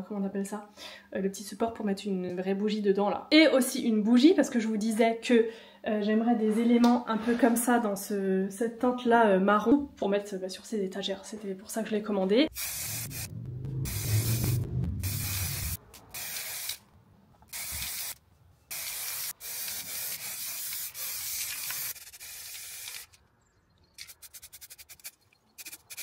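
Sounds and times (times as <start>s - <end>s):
spray paint can hissing: 12.5s - 13.3s, 15.0s - 16.8s, 17.5s - 23.1s, 24.1s - 26.0s.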